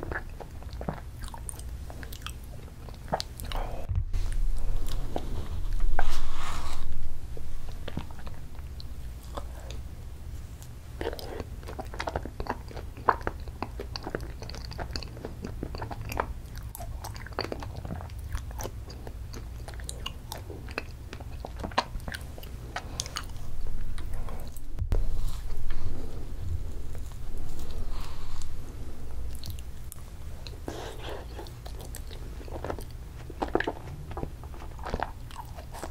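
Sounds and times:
wet chewing clicks and smacks: 0:00.0 - 0:03.6, 0:10.6 - 0:24.8, 0:29.3 - 0:35.9.

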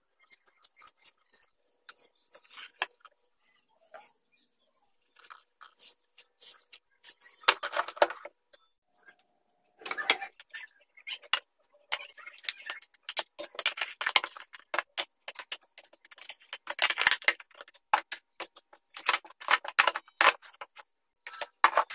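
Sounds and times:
plastic boxes clicking and tapping: 0:11.3 - 0:21.9.

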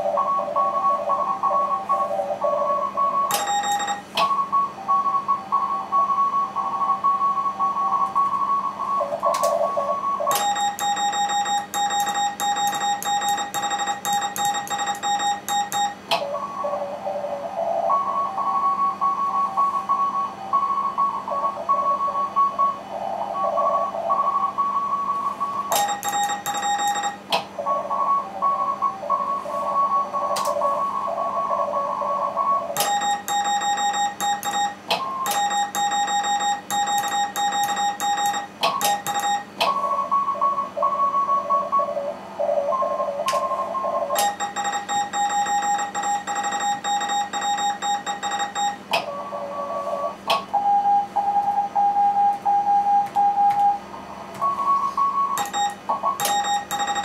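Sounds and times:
overlapping morse code tones: 0:02.7 - 0:04.7, 0:10.0 - 0:16.0, 0:25.7 - 0:27.2, 0:32.8 - 0:39.5, 0:43.8 - 0:48.8, 0:54.5 - 0:57.0
sharp morse beeping tone: 0:02.8 - 0:04.7, 0:10.3 - 0:16.0, 0:25.7 - 0:27.2, 0:32.8 - 0:39.6, 0:44.2 - 0:48.8, 0:54.5 - 0:57.0.

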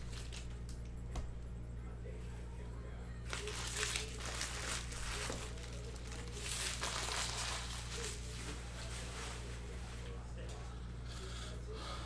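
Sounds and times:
wrappers and cards crinkling: 0:00.0 - 0:00.8, 0:03.3 - 0:09.8.

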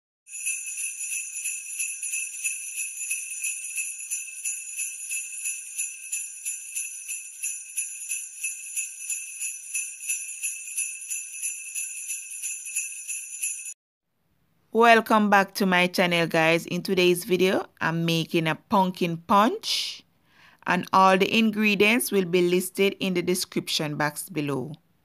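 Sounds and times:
sleigh bells jingling: 0:00.3 - 0:13.8.

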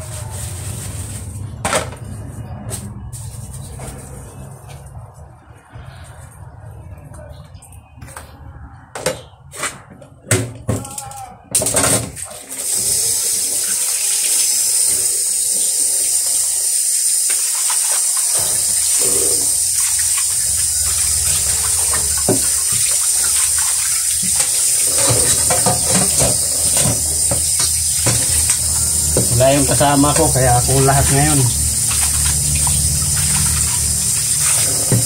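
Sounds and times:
tap running into steel sink: 0:17.3 - 0:29.4.

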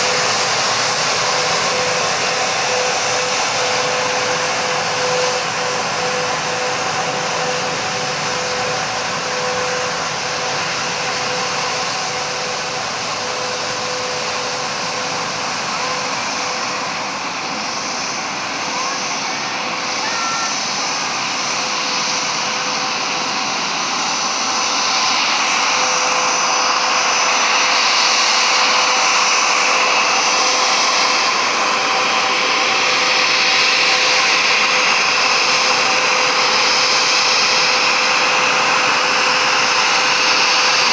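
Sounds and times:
jet engines whining at taxi power: 0:00.0 - 0:40.9.

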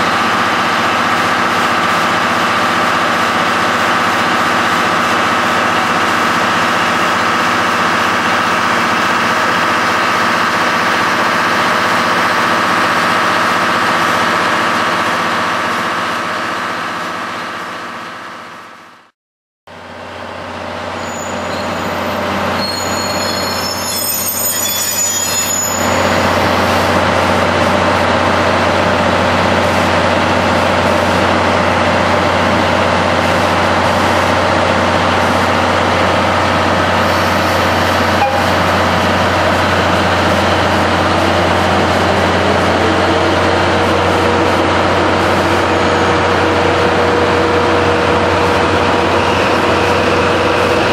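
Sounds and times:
locomotive engine drone: 0:00.0 - 0:19.0, 0:19.7 - 0:50.9
short high squeals: 0:21.0 - 0:26.6
diesel engine hum: 0:26.0 - 0:50.9.

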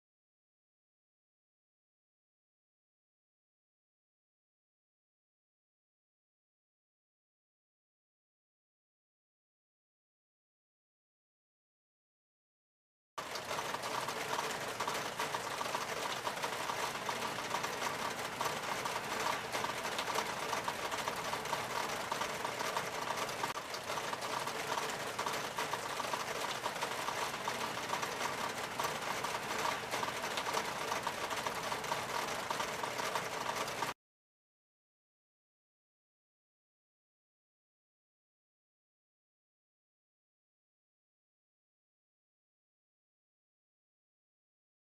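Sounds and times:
raindrops pattering on surfaces: 0:13.2 - 0:34.0.

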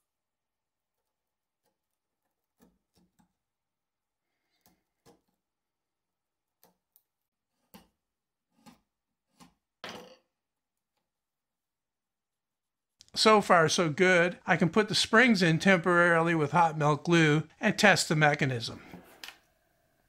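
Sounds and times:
chisel cutting plywood: 0:00.9 - 0:03.5, 0:07.4 - 0:09.7.

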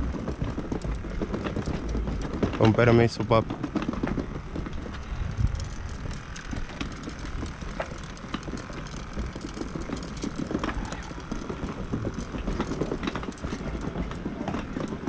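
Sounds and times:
footsteps on wooden pier: 0:00.0 - 0:15.0
low rumble: 0:04.3 - 0:12.5.

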